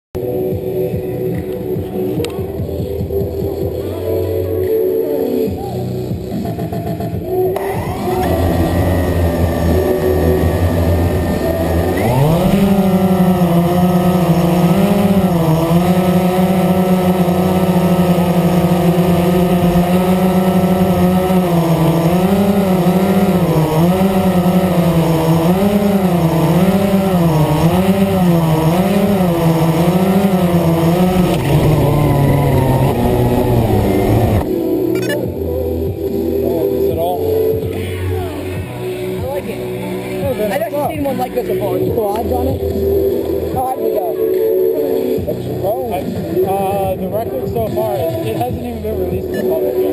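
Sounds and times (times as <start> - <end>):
quadcopter motors whining: 5.3 - 39.6.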